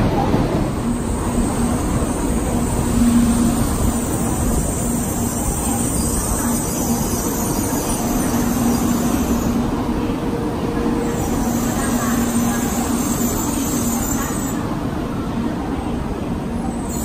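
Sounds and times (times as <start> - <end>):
train running rumble: 0.0 - 17.0
train hiss: 11.0 - 14.8.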